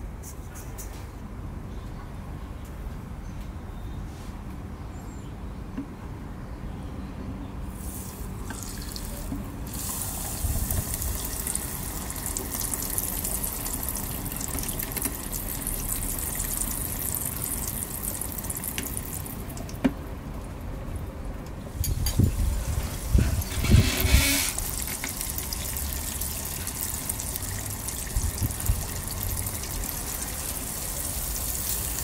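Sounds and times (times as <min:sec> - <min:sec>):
tofu sizzling in hot oil: 0:09.7 - 0:19.0, 0:23.4 - 0:32.0.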